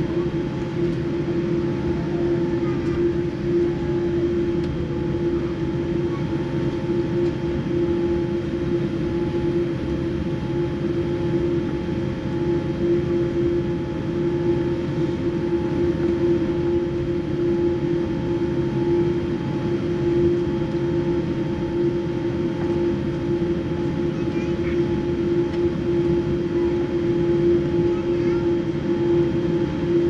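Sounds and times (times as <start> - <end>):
aircraft cabin rumble and hum: 0.0 - 30.0.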